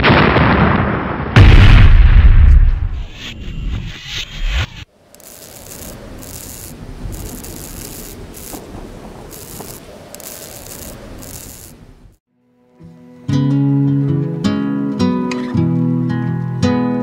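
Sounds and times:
rasping noise with high hiss: 3.0 - 12.2.

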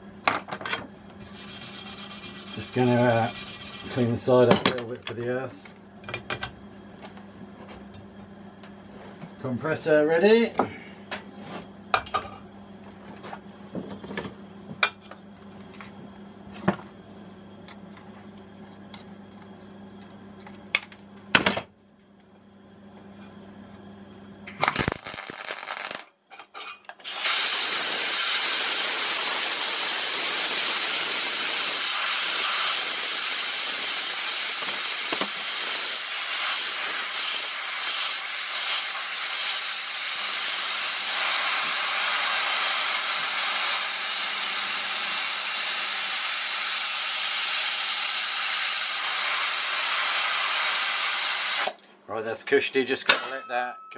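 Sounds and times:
tack weld: 24.5 - 26.1, 27.0 - 51.8
air blow gun hissing: 27.0 - 51.7.

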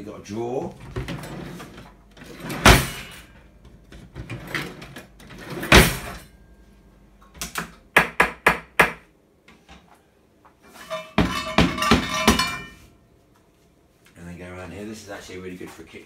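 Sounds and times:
cutlery drawer shutting: 0.8 - 3.3, 4.1 - 6.2.

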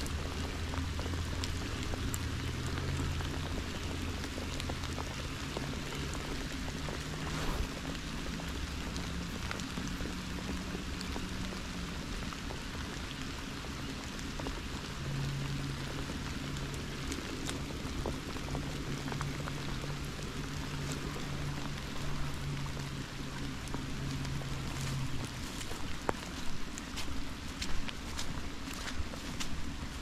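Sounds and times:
rain falling on pond and grass: 0.0 - 30.0.

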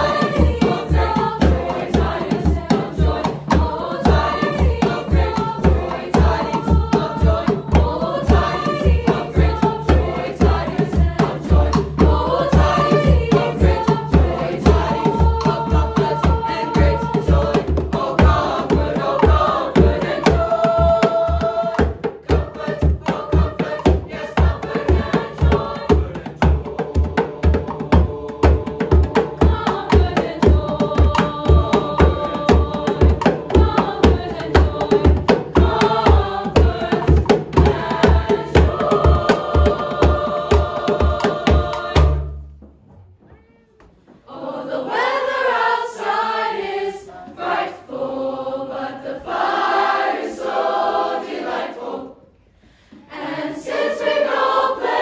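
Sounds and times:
male chorus singing: 0.0 - 42.3, 44.3 - 52.2, 53.1 - 55.0
female chorus singing: 0.0 - 42.4, 44.1 - 55.0
hand drums beating: 0.0 - 42.9.

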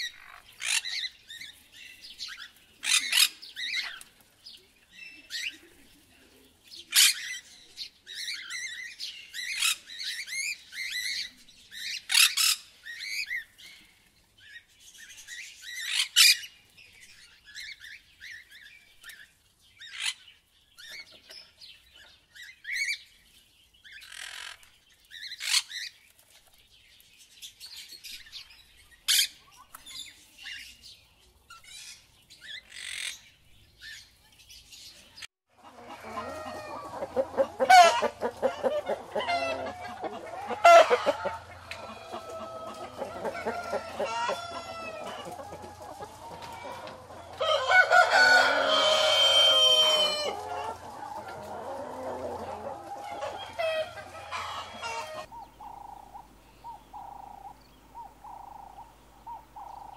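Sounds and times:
parrots chattering and screeching: 0.0 - 1.1, 24.0 - 25.9, 31.6 - 33.2
chickens clucking: 35.5 - 59.9.

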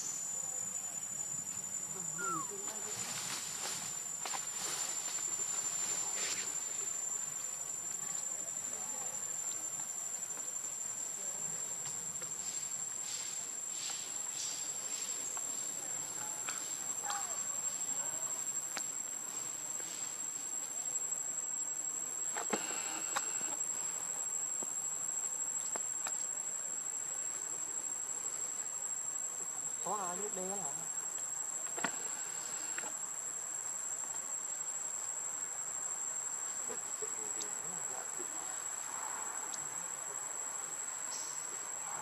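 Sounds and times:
high-pitched insect drone: 0.0 - 3.4.

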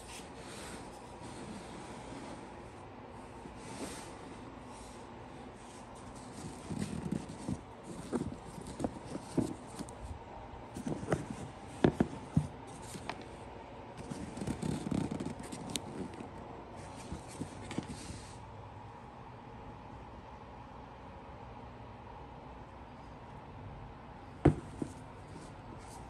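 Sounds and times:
rustling of shoe material: 0.0 - 18.4, 24.4 - 26.0
hands handling sneakers: 5.8 - 10.1, 10.8 - 13.3, 14.0 - 18.2, 24.4 - 26.0.

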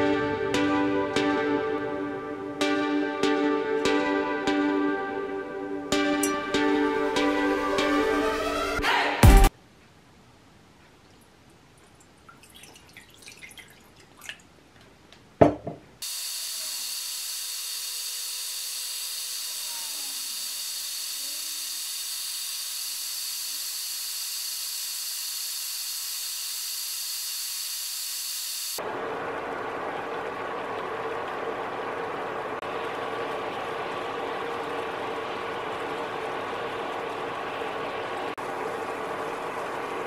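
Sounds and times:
water poured into frying pan: 12.3 - 14.5
water hissing as it heats: 16.0 - 40.0.

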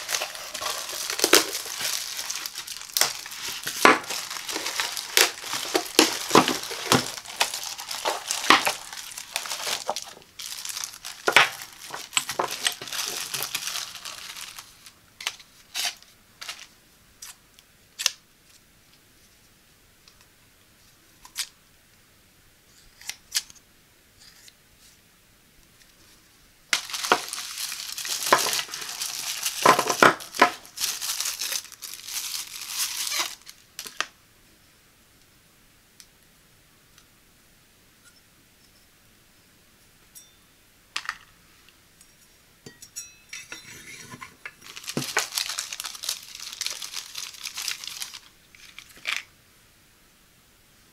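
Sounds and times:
cardboard and plastic crinkling: 0.0 - 16.7, 26.7 - 34.1, 44.4 - 49.3.

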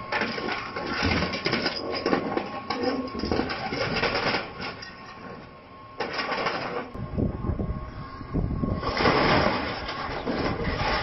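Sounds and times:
metal crunching and screeching: 8.8 - 11.0.

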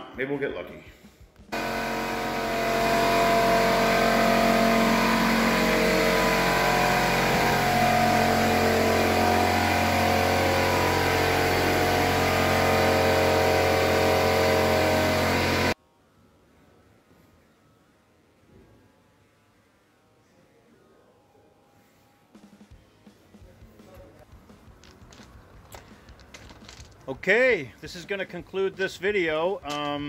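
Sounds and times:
air compressor running: 1.5 - 15.8.

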